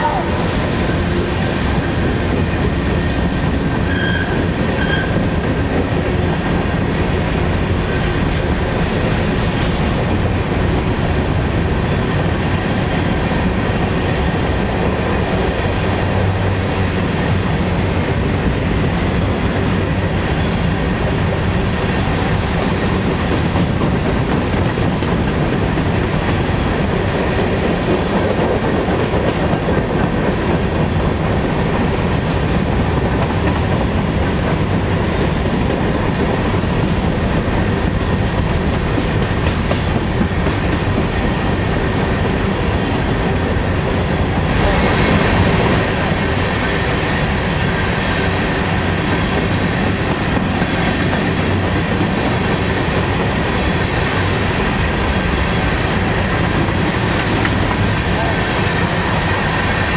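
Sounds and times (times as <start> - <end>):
steel wheels rolling on rails: 0.3 - 59.9.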